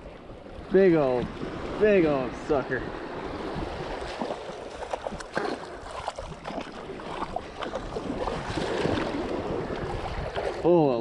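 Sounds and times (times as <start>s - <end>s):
surf water sloshing around legs: 0.0s - 11.0s
wind rumble on microphone: 2.7s - 10.8s.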